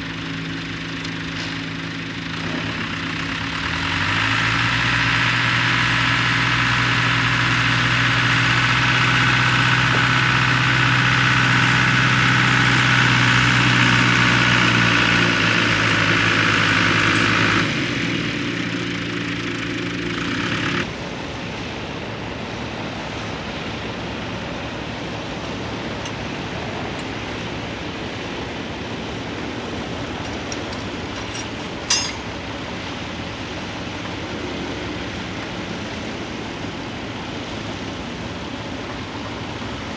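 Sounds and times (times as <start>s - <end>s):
steady engine hum: 0.0s - 39.9s
tractor engine under load: 0.0s - 39.9s.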